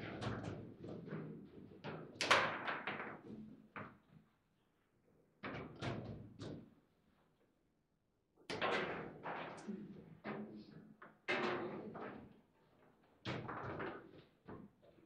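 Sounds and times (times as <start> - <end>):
table football clacks and knocks: 0.0 - 4.2, 5.4 - 6.8, 13.0 - 15.0.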